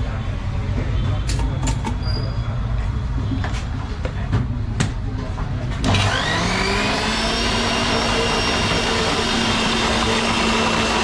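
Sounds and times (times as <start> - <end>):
blender running with whine: 5.8 - 11.0.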